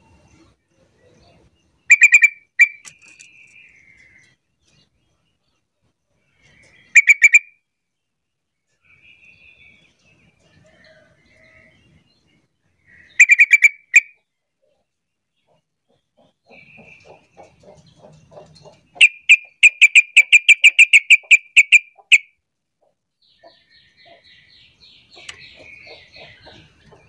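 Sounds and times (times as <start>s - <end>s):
bird calling rapid sharp notes: 1.9s - 3.1s, 6.9s - 7.5s, 13.2s - 14.2s, 19.0s - 22.3s.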